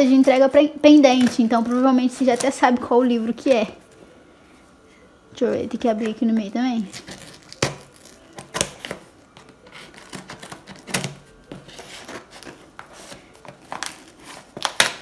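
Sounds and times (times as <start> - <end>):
crinkling: 6.0 - 15.0.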